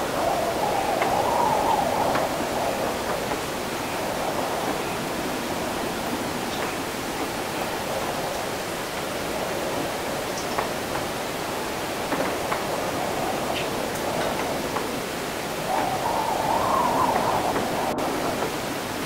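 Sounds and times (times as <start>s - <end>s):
wind: 0.0s - 19.0s.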